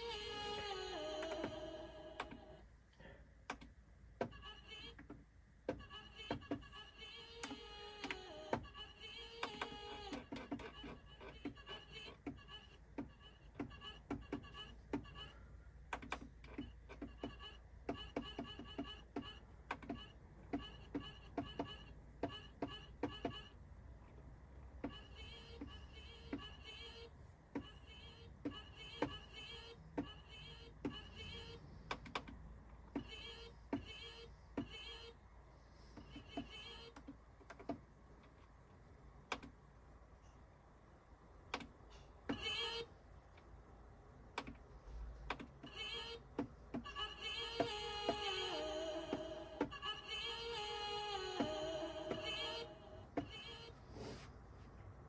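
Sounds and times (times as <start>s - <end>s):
faint clicks and taps: 35.8s - 39.6s.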